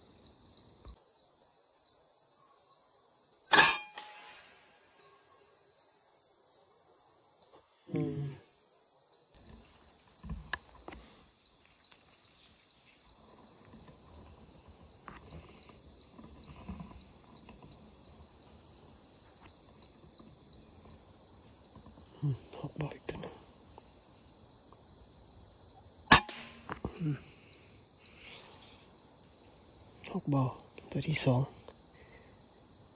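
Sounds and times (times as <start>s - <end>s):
insects droning: 0.0s - 32.9s
low voice-like sound: 7.9s - 8.4s, 26.9s - 27.3s.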